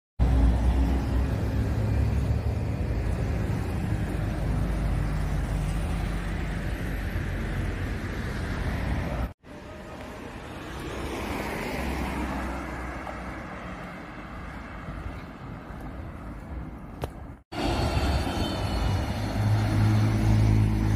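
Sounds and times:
road traffic rumble: 0:00.2 - 0:20.9
car passing by: 0:09.9 - 0:15.3, 0:17.5 - 0:20.9.

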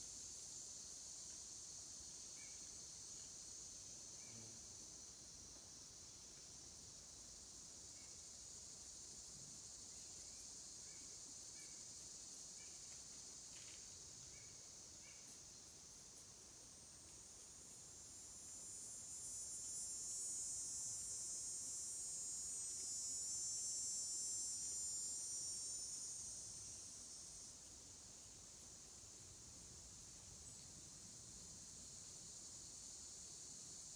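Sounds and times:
insects droning: 0:00.0 - 0:33.9
faint chirps: 0:04.2 - 0:04.7.

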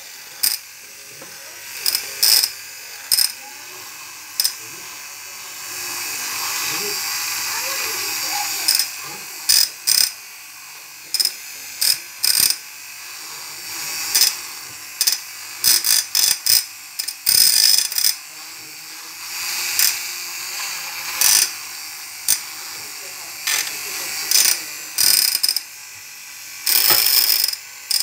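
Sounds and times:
handheld mixer whirring: 0:00.0 - 0:28.0.

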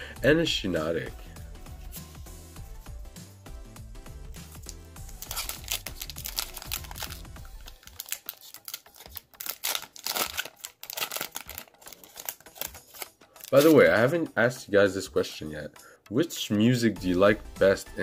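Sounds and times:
background music: 0:00.0 - 0:18.0
foil wrapper crinkling and tearing: 0:04.5 - 0:13.8.

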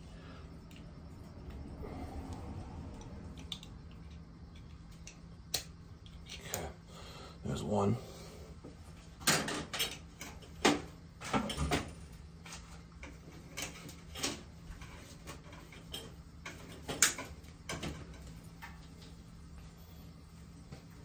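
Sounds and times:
faint low hum: 0:00.0 - 0:21.0
hand tools and wire handled: 0:09.2 - 0:18.9.

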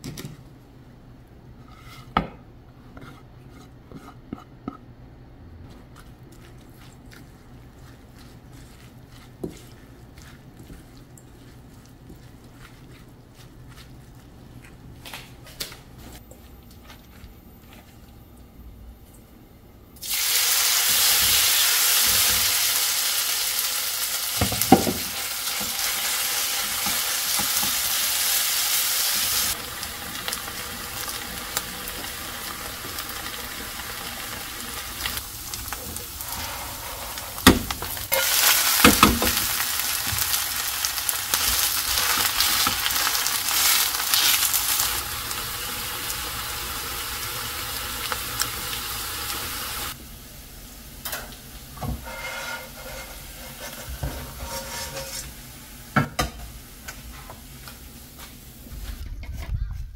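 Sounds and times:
pancake sizzling in hot oil: 0:20.0 - 0:50.0.

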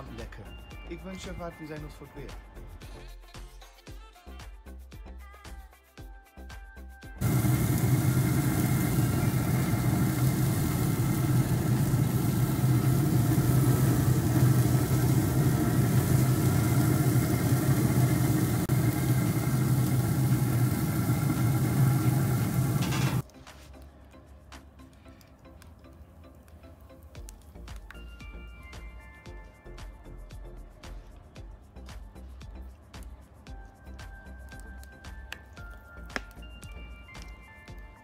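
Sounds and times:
grill fan humming: 0:07.2 - 0:23.2.

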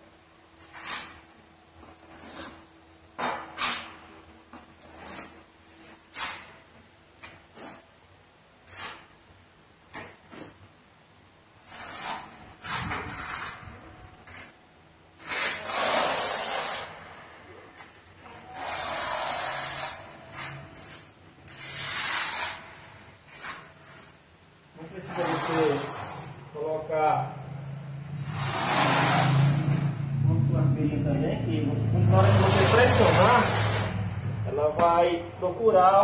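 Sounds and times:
trowel scraping mortar on tile: 0:00.6 - 0:01.3, 0:02.1 - 0:02.7, 0:03.4 - 0:04.0, 0:04.6 - 0:06.6, 0:07.5 - 0:07.9, 0:08.6 - 0:09.2, 0:11.6 - 0:14.6, 0:15.2 - 0:17.2, 0:17.8 - 0:24.2, 0:25.0 - 0:26.4, 0:28.2 - 0:30.0, 0:32.1 - 0:34.1.

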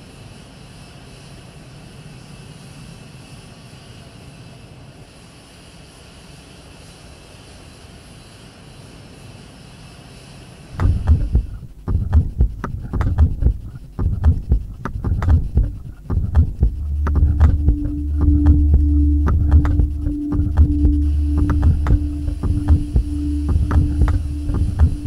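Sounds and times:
beat of low thumps and clicks: 0:10.8 - 0:25.0
electronic drone: 0:15.0 - 0:25.0
low bass note: 0:15.0 - 0:25.0.

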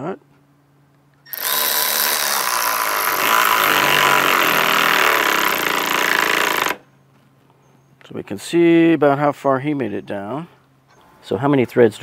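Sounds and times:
cordless ratchet whining: 0:01.3 - 0:06.8.

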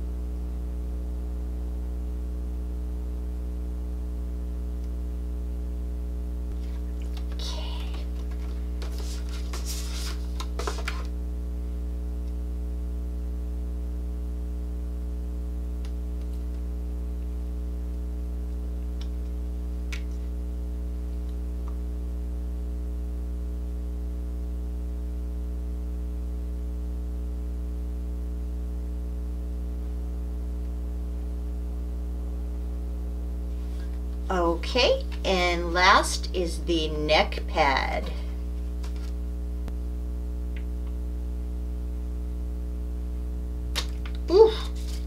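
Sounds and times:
low electrical hum: 0:00.0 - 0:45.0
rustling: 0:06.6 - 0:11.1, 0:44.6 - 0:45.0.

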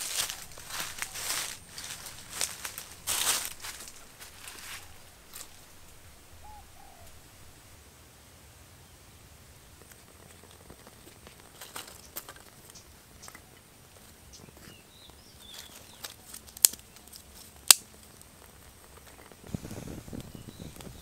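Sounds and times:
faint bird chirps: 0:00.0 - 0:07.6, 0:19.8 - 0:21.0
twig fire crackling: 0:00.0 - 0:07.8, 0:09.4 - 0:21.0.

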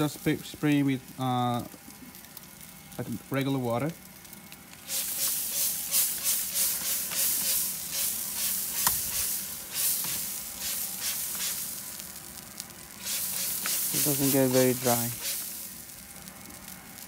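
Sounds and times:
chicken sizzling on a grill: 0:00.0 - 0:17.0
water spray bottle squirts: 0:13.0 - 0:15.6.

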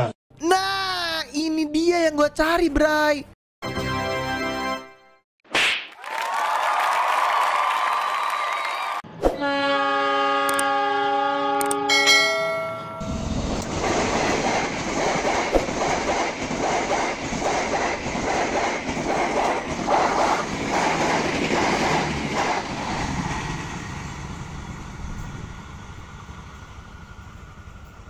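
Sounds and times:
train horn chord: 0:09.4 - 0:13.3
train rumbling past: 0:12.1 - 0:28.0.

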